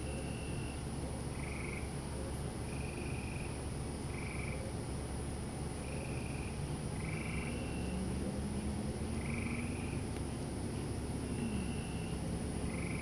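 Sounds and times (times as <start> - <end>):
dense low frog chorus: 0.0 - 13.0
short trilled frog calls: 1.4 - 1.9, 2.7 - 4.6, 5.8 - 8.1, 9.2 - 10.1, 11.2 - 13.0
high-pitched insect trill: 5.8 - 8.1, 11.2 - 13.0.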